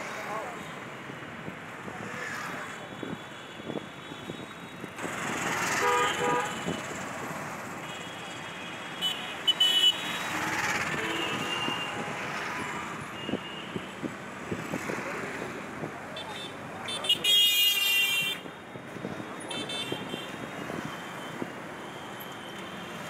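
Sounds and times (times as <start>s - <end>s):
road traffic passing: 0.0s - 23.0s
low vehicle horn: 5.8s - 6.7s.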